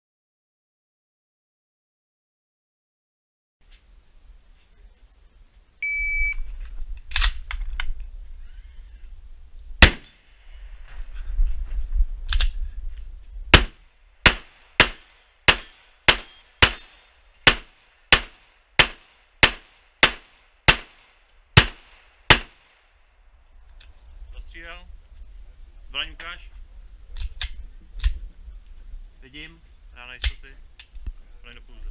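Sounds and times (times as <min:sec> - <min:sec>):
shot timer beep: 0:05.8 - 0:06.4
pistol shots: 0:09.8 - 0:10.2, 0:13.5 - 0:22.7.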